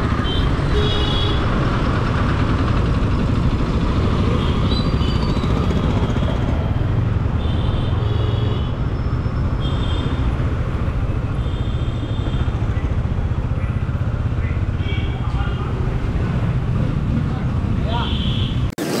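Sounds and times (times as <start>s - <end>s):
vehicle horns honking: 0.1s - 1.5s, 7.4s - 8.9s, 9.6s - 10.4s, 14.8s - 15.8s, 17.9s - 18.7s.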